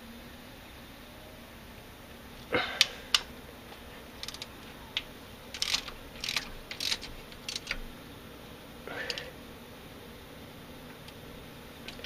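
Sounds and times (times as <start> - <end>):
ratcheting wrench clicking: 4.2 - 7.9.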